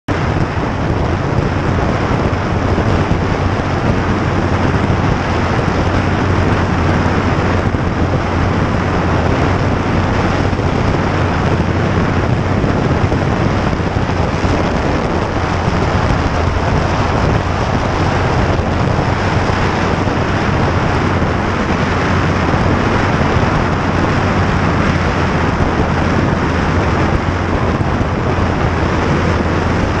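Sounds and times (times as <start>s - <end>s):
motorcycle engine drone: 0.0s - 30.0s
wind rush on microphone: 0.1s - 30.0s.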